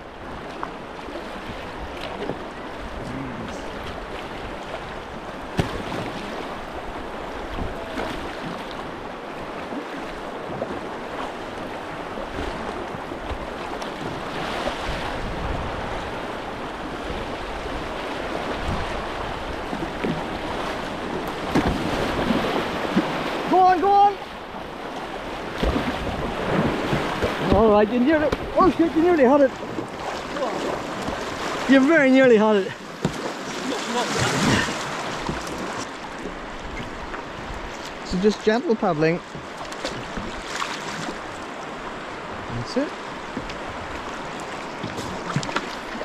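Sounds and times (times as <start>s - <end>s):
river current rushing: 0.0s - 46.0s
paddle strokes splashing: 0.1s - 46.0s.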